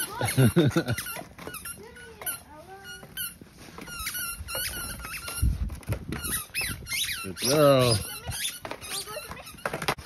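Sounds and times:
squeaky toy being chomped: 6.2s - 9.8s.

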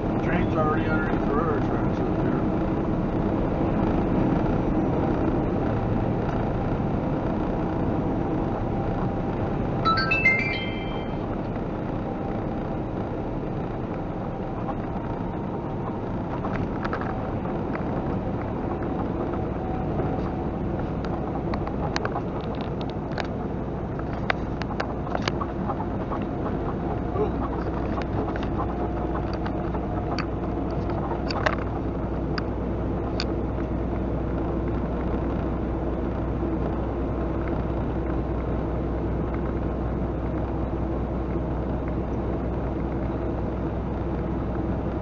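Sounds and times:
truck engine and road drone: 0.0s - 45.0s
background music: 9.9s - 11.2s
rising electronic chime: 9.9s - 11.3s.

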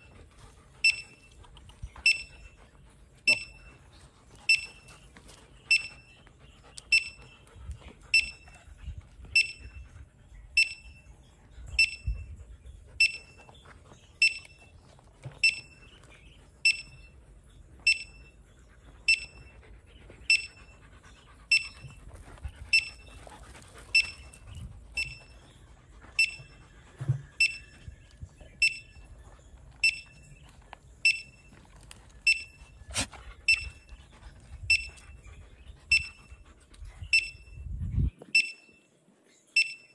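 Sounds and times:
metal detector beeping: 0.8s - 1.4s, 2.0s - 2.6s, 3.2s - 3.8s, 4.4s - 5.1s, 5.7s - 6.2s, 6.9s - 7.4s, 8.1s - 8.6s, 9.3s - 9.8s, 10.6s - 11.0s, 11.8s - 12.3s, 13.0s - 13.5s, 14.2s - 14.7s, 15.3s - 15.9s, 16.6s - 17.2s, 17.8s - 18.4s, 19.1s - 19.6s, 20.3s - 20.7s, 21.5s - 22.0s, 22.7s - 23.2s, 23.9s - 25.4s, 26.2s - 26.6s, 27.4s - 28.0s, 28.6s - 29.0s, 29.8s - 30.4s, 31.0s - 31.5s, 32.2s - 32.7s, 33.5s - 33.9s, 34.7s - 35.1s, 35.9s - 36.3s, 37.1s - 37.6s, 38.3s - 38.8s, 39.6s - 39.9s.

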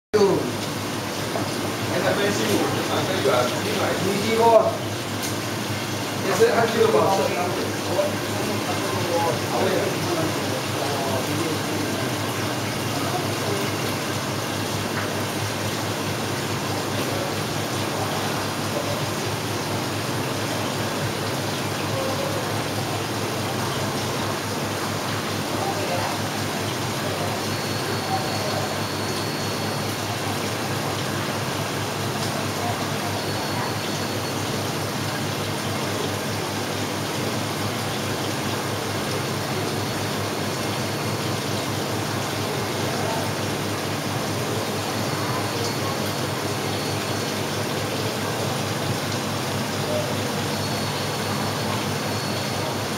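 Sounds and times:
aquarium water rushing: 0.2s - 52.9s.

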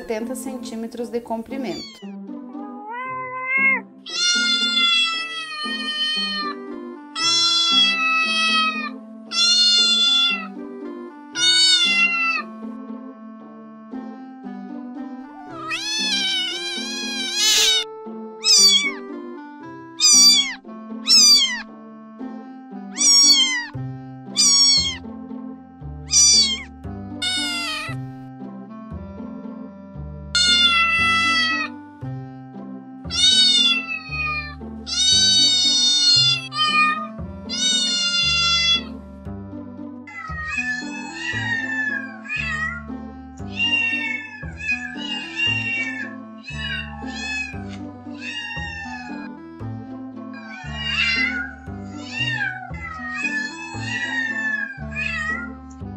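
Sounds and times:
background music: 0.0s - 55.9s
cats meowing: 1.6s - 6.6s, 7.2s - 10.6s, 11.4s - 12.5s, 15.4s - 19.1s, 20.0s - 21.7s, 22.9s - 23.8s, 24.4s - 25.0s, 26.1s - 28.0s, 30.4s - 31.8s, 33.1s - 39.0s, 40.1s - 49.4s, 50.3s - 55.6s.

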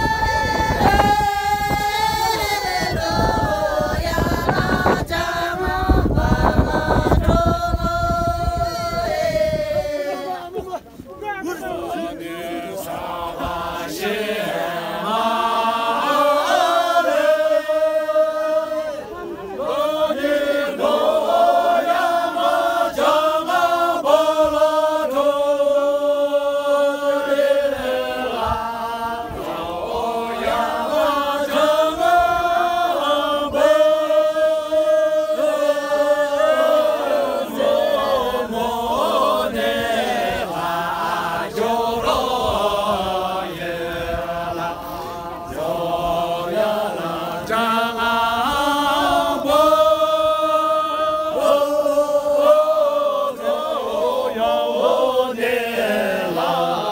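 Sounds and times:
men singing in unison: 0.0s - 10.6s, 11.4s - 56.9s.

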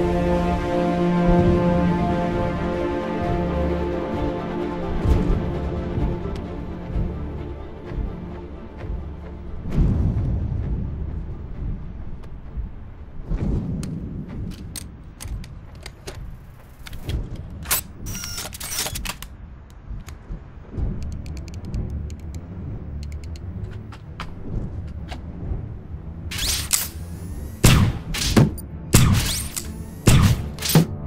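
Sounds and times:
low rumble: 0.0s - 31.0s
sharp mechanical clicks: 16.8s - 19.3s, 21.0s - 22.4s, 23.0s - 23.5s, 26.3s - 28.4s, 29.0s - 31.0s
short mechanical whirs: 26.3s - 27.7s.

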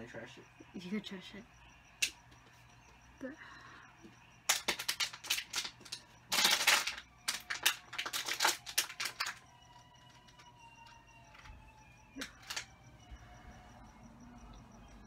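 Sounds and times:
small objects clicking and crackling: 4.5s - 9.4s, 12.1s - 12.7s.

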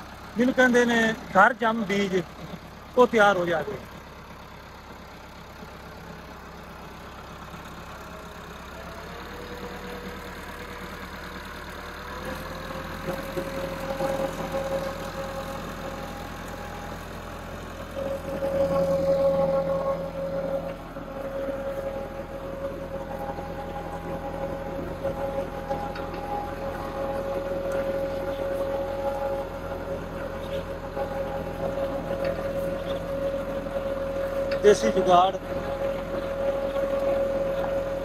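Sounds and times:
tractor diesel engine running: 0.0s - 38.0s.

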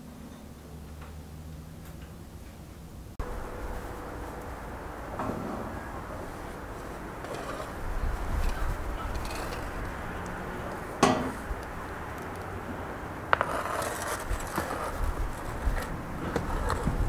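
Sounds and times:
tray knocking and scraping: 7.2s - 11.6s.

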